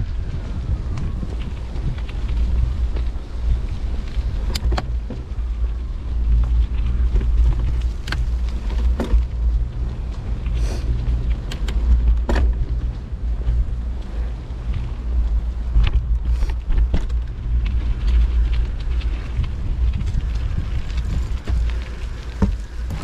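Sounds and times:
bicycle clicks and rattles: 0:00.0 - 0:23.0
wind rumbling on microphone: 0:00.0 - 0:23.0.

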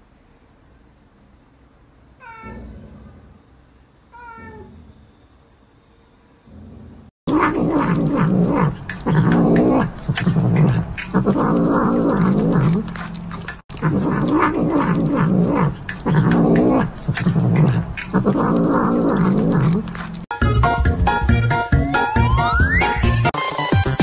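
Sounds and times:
cat growling and moaning: 0:02.2 - 0:03.4, 0:04.2 - 0:05.0, 0:06.6 - 0:13.1, 0:13.8 - 0:20.1.

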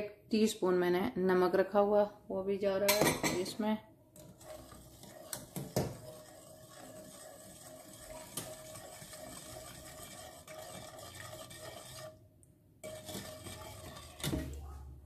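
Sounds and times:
whisk scraping a metal saucepan: 0:04.2 - 0:12.2, 0:12.8 - 0:14.8.

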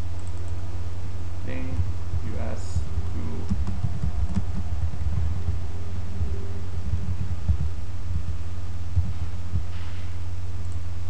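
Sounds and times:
low electrical hum: 0:00.0 - 0:11.0
soft low thumps: 0:01.5 - 0:10.3.

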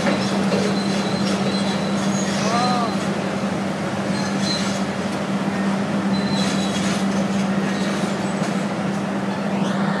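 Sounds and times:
excavator engine humming: 0:00.0 - 0:10.0
metallic squeals of crusher jaws: 0:06.1 - 0:07.0.

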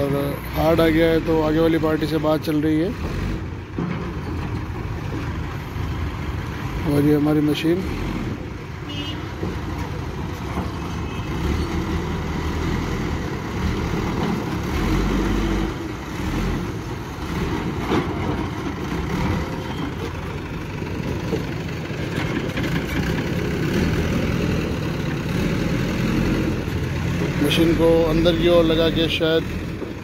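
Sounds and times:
diesel engine running: 0:00.0 - 0:30.0.

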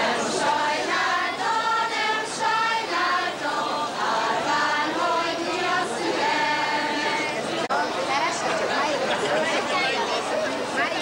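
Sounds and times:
women singing folk song: 0:00.0 - 0:07.7.

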